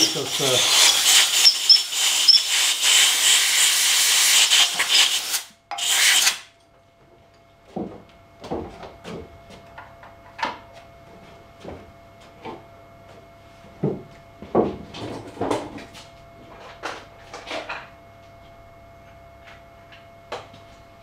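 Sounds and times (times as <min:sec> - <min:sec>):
compressed air hissing: 0:00.0 - 0:06.4.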